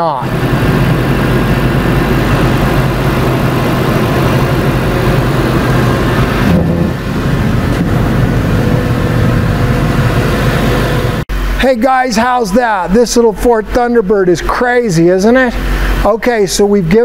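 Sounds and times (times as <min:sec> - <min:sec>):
car engine revving loudly: 0:00.3 - 0:11.2.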